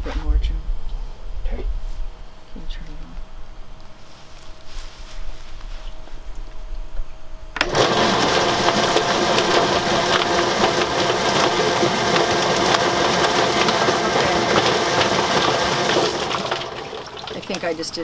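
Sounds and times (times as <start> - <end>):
chicken plucker motor spinning: 7.6 - 17.6.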